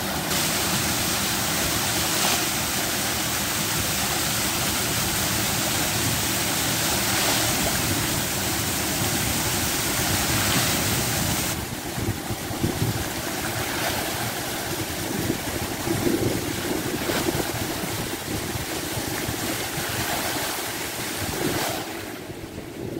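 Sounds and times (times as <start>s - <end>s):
fountain water splashing: 0.0s - 22.9s
wind rumbling on microphone: 0.0s - 22.9s.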